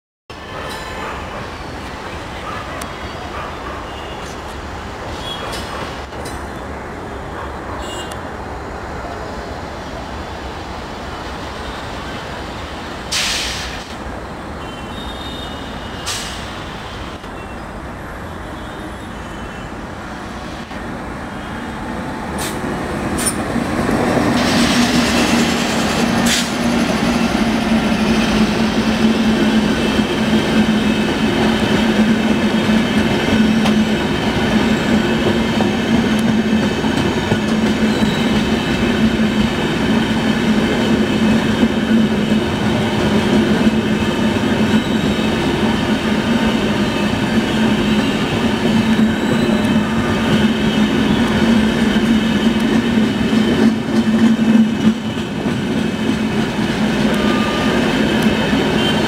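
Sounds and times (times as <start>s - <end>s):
electric train passing: 15.6s - 59.0s.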